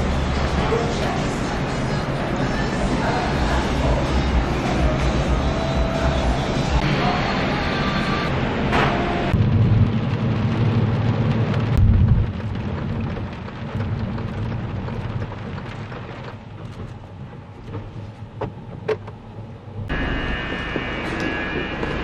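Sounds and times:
road and engine rumble: 0:00.0 - 0:22.0
rain hitting car: 0:09.4 - 0:19.9.

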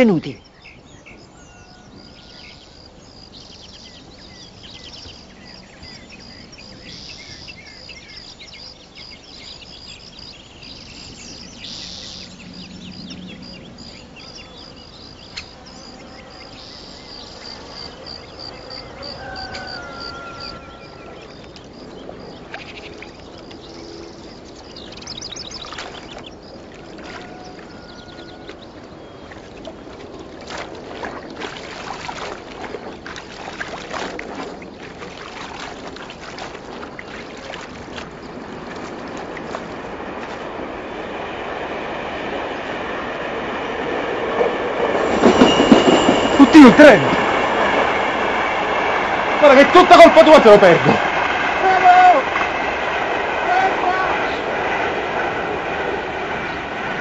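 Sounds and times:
birds chirping: 0:00.0 - 0:57.0
insect chirping rhythmically: 0:01.9 - 0:27.0.

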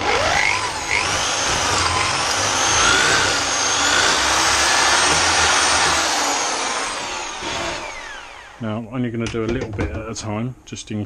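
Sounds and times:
electric drill boring into metal: 0:00.0 - 0:08.6.

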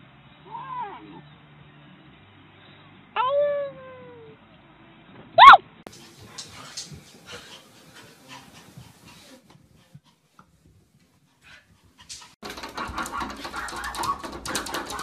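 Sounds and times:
pets tapping on glass door: 0:12.4 - 0:15.0.

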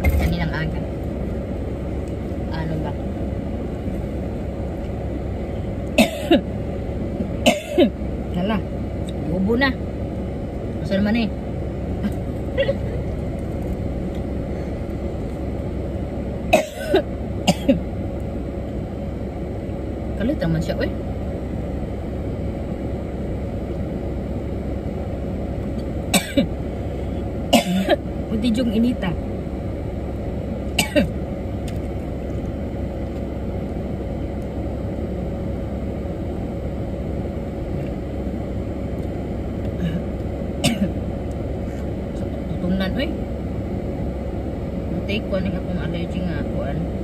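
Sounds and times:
car cabin hum: 0:00.0 - 0:47.0
woman coughing: 0:06.0 - 0:06.5, 0:07.4 - 0:08.0, 0:16.5 - 0:17.8, 0:26.1 - 0:26.5, 0:27.5 - 0:28.0, 0:30.8 - 0:31.2, 0:40.6 - 0:41.0.

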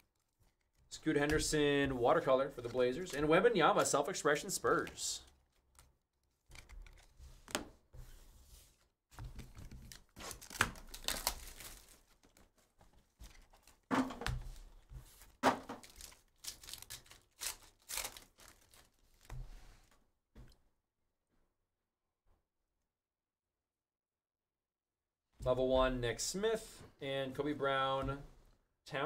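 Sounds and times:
foil pack ripping open: 0:09.9 - 0:12.4, 0:15.8 - 0:19.0
plastic shrink-wrap tearing: 0:09.9 - 0:12.4, 0:15.8 - 0:19.0.

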